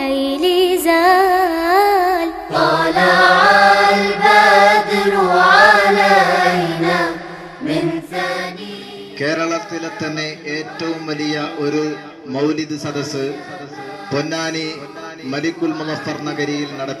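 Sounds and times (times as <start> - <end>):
background noise: 0.0 - 17.0
devotional chant with high voice: 0.0 - 17.0
man chanting: 9.2 - 17.0.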